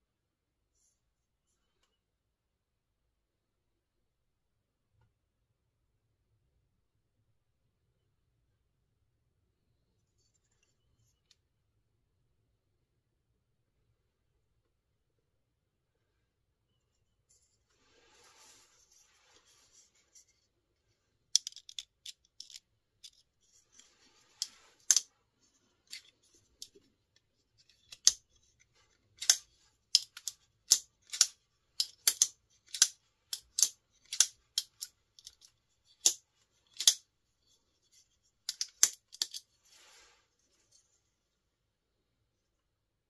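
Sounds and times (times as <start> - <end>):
folding knife clicking open and shut: 29.2 - 29.4, 30.0 - 35.4, 36.0 - 37.0.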